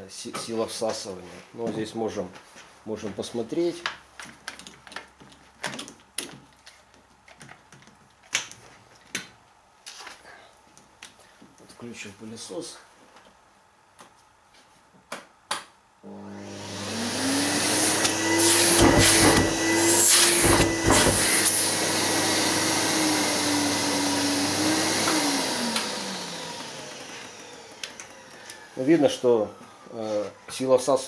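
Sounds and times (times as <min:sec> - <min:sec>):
vacuum cleaner motor humming: 0:16.0 - 0:30.7.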